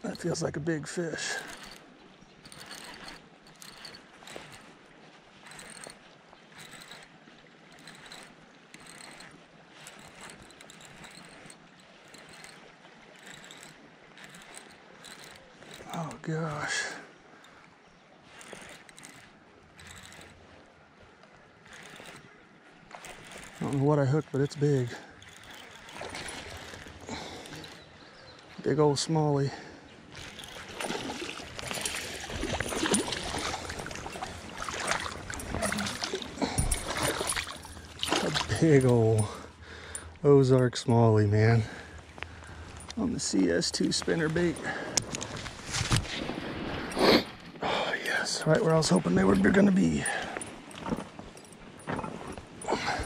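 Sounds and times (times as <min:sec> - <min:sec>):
fishing reel clicking: 0:00.1 - 0:04.8, 0:05.4 - 0:16.3, 0:17.4 - 0:20.6, 0:21.5 - 0:28.6, 0:30.1 - 0:40.3
creek water rushing: 0:30.2 - 0:40.4.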